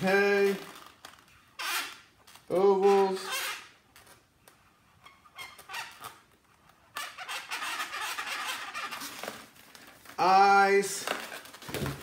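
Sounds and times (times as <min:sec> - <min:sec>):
marker squeaking on balloon: 0:01.4 - 0:04.0, 0:04.8 - 0:09.4.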